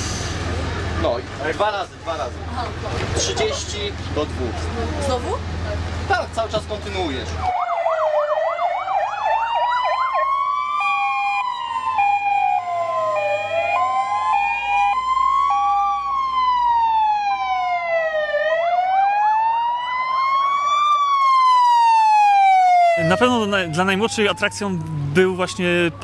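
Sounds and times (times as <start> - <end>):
emergency vehicle sirens wailing: 7.3 - 26.0
fast siren yelp: 7.4 - 26.0
two-tone hi-lo siren: 7.5 - 26.0.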